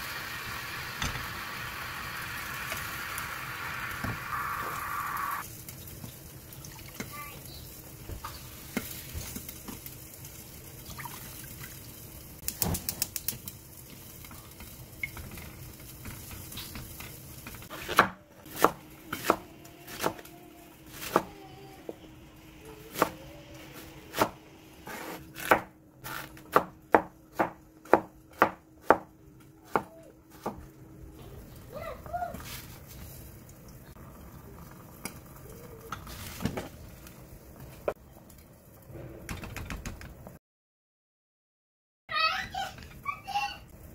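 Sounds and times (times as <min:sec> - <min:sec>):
low kitchen noise: 0:00.0 - 0:40.4, 0:42.1 - 0:43.9
knife chopping on wooden board: 0:17.8 - 0:20.2, 0:24.1 - 0:29.1, 0:29.7 - 0:30.6.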